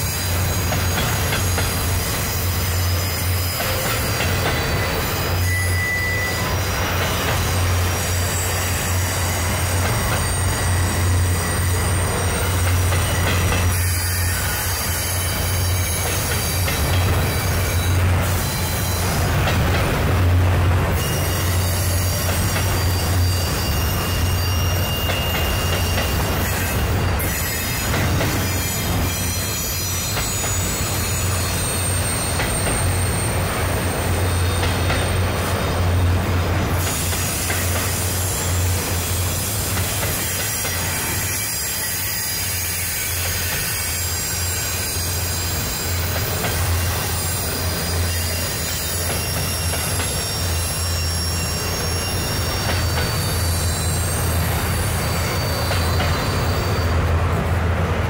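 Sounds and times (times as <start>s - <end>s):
high wheel squeal: 0.0s - 57.4s
train wheels rumbling on rail: 0.0s - 58.0s.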